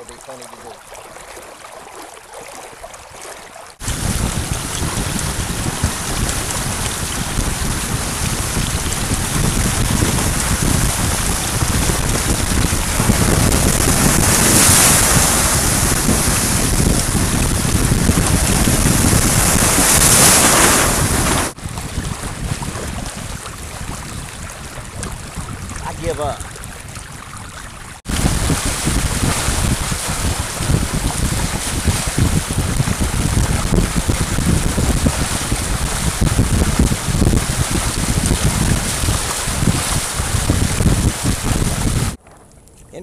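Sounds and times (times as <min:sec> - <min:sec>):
water washing along a hull: 0:00.0 - 0:42.2
spray splashing off a hull: 0:03.8 - 0:23.3, 0:28.1 - 0:42.2
wind blasting on microphone: 0:03.8 - 0:43.0.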